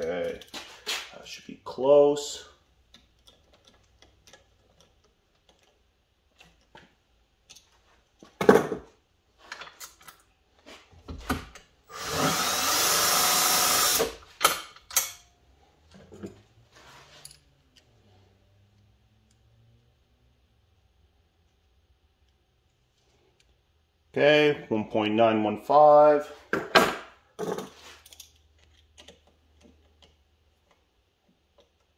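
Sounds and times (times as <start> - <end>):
handling clicks and knocks: 2.8 - 8.9, 26.5 - 31.9
cordless drill spinning: 11.9 - 14.2.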